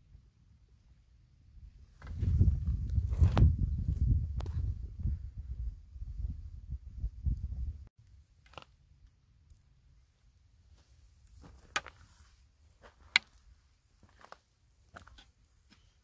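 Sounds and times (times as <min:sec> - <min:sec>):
footsteps on rocky scree: 0:02.0 - 0:04.6, 0:11.3 - 0:16.0.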